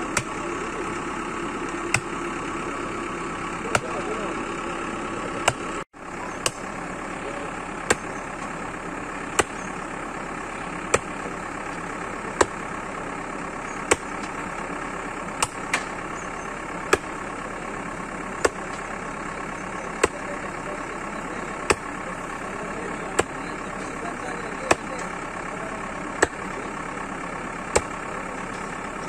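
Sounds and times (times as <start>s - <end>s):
backhoe engine idling: 0.0s - 29.0s
hatchet chopping into bone: 1.9s - 2.1s, 5.4s - 5.7s, 7.9s - 8.1s, 9.3s - 9.7s, 10.9s - 11.1s, 13.9s - 14.4s, 15.4s - 15.9s, 16.9s - 17.1s, 20.0s - 20.2s, 26.2s - 26.4s, 27.7s - 27.9s.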